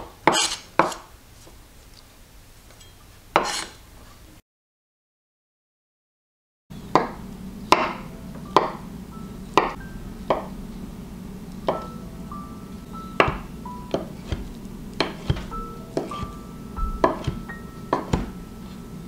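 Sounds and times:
knife chopping on wooden board: 0.0s - 1.1s, 3.4s - 3.8s, 6.9s - 8.0s, 13.2s - 18.4s
soft background music: 6.9s - 19.0s.

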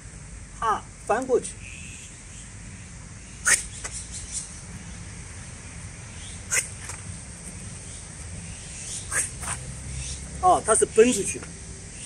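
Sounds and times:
steady low rumble: 0.0s - 1.1s, 4.1s - 12.0s.

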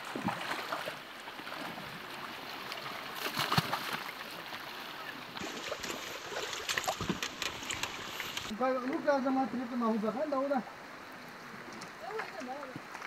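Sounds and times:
people wading and splashing: 0.0s - 8.5s
shallow river water running: 0.0s - 13.0s.

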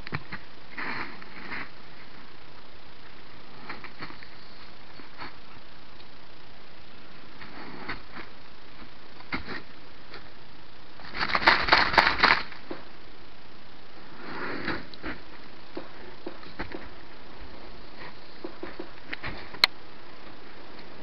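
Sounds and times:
faint rustle: 0.0s - 13.0s
steady hiss: 0.0s - 21.0s
twigs crackling and snapping: 11.0s - 12.9s.

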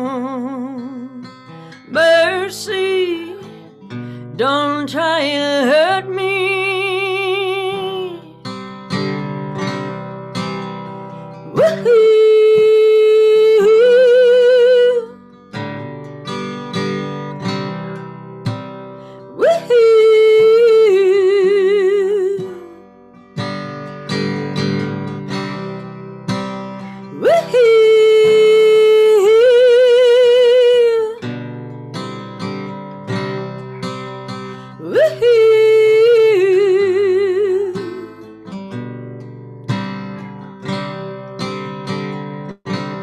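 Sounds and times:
woman singing: 0.0s - 8.7s, 11.2s - 15.9s, 19.2s - 23.0s, 26.8s - 31.5s, 33.1s - 38.9s
strummed acoustic guitar: 0.0s - 43.0s.

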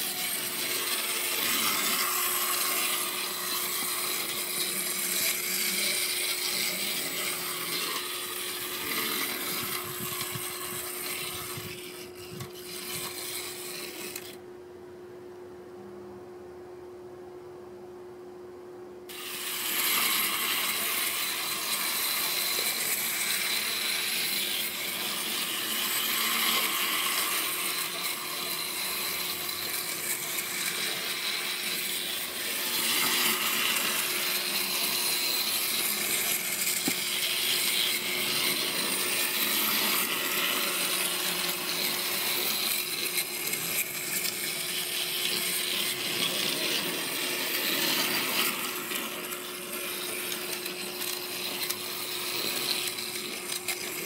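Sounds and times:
plastic wheels rattling on rails: 0.0s - 14.4s, 19.1s - 54.0s
toy locomotive gears whirring: 0.0s - 14.4s, 19.1s - 54.0s.

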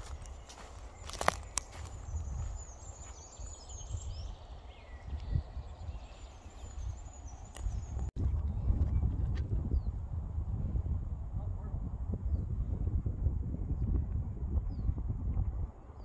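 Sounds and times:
faint bird chirps: 0.0s - 8.1s.

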